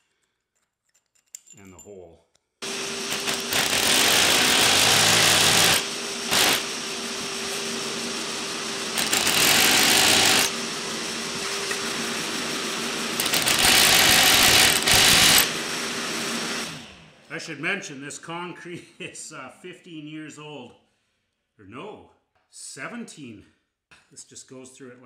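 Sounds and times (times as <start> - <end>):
hammer drill boring into concrete: 2.6 - 16.9
shop vacuum humming: 2.6 - 17.3.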